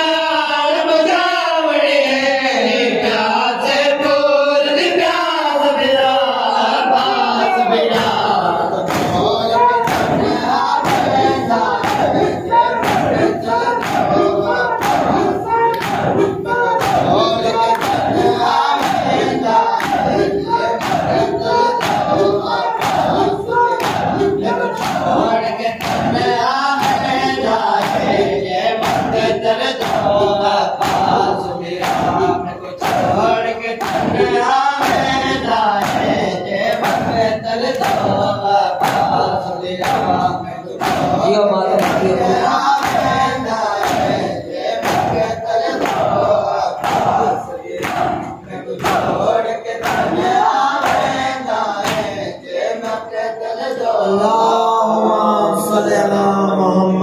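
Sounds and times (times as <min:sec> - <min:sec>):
men chanting together: 0:00.0 - 0:57.0
men beating chests: 0:07.9 - 0:52.3.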